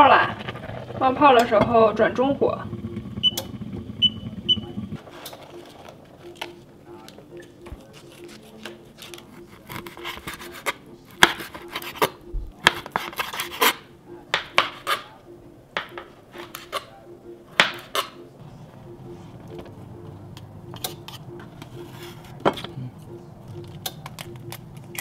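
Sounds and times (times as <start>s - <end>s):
knife striking cutting board: 9.7s - 15.1s.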